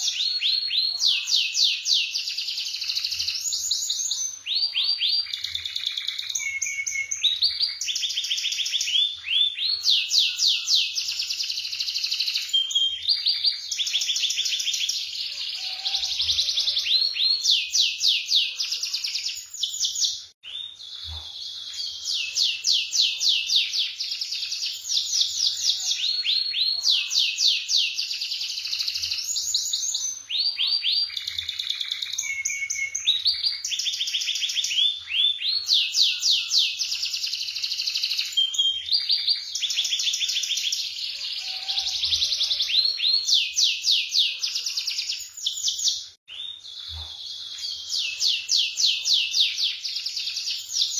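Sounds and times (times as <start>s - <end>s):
canary singing trills: 0.0s - 50.9s.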